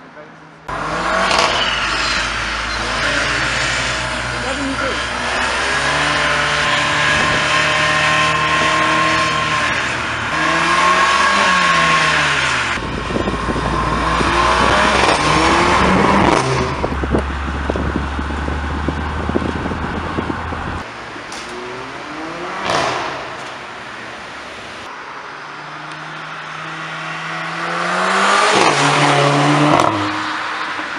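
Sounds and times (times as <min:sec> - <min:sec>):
car engine revving: 0:00.6 - 0:25.0, 0:25.6 - 0:30.9
exhaust pops and crackles: 0:16.1 - 0:21.9, 0:22.5 - 0:24.8.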